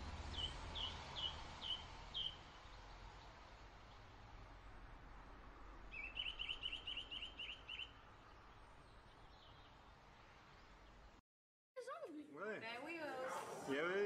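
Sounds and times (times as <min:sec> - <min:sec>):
faint outdoor ambience: 0:00.0 - 0:11.2, 0:11.8 - 0:14.0
bird chirping: 0:00.3 - 0:03.3, 0:05.9 - 0:11.2.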